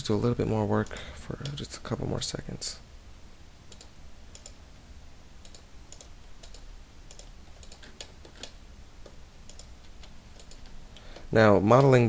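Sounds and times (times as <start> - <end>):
keyboard and mouse clicks: 3.7 - 4.6, 5.4 - 12.0.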